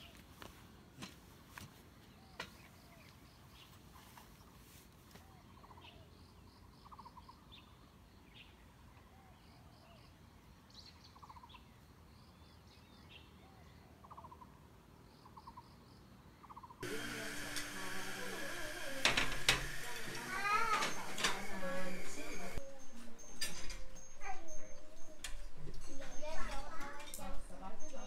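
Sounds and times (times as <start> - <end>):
bird trilling and chirping: 20.4 - 28.0.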